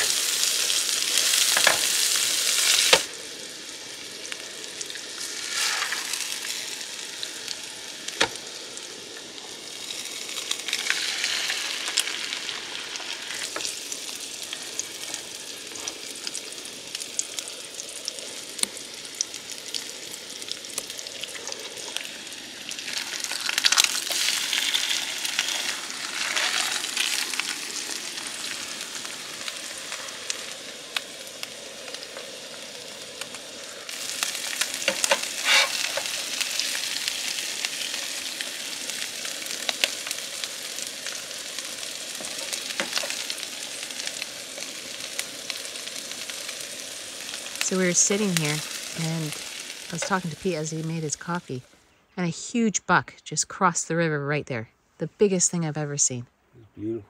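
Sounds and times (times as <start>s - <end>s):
food sizzling in oil: 0.0s - 51.7s
spoon and spatula scraping pan: 34.9s - 36.1s.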